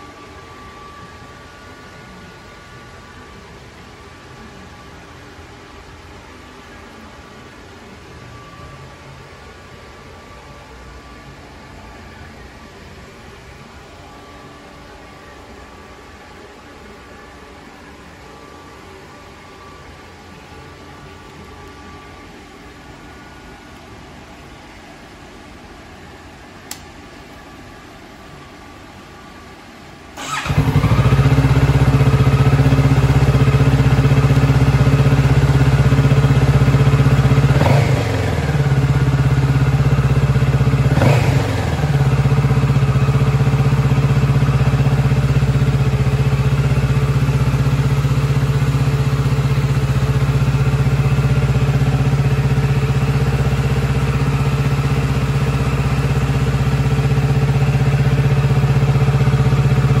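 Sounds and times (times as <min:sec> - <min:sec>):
motorcycle engine idling: 0:30.2 - 1:00.0.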